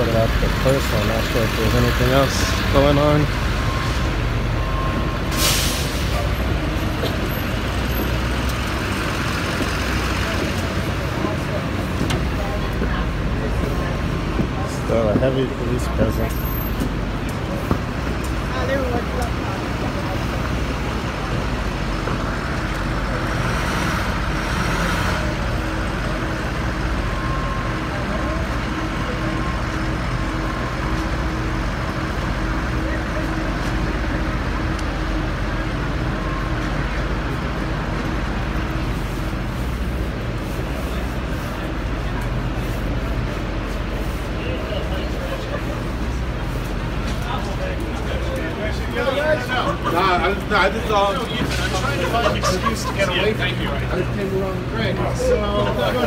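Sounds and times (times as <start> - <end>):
city street traffic: 0.0 - 56.0
heavy truck engines: 0.0 - 56.0
air brake hiss: 5.3 - 6.3.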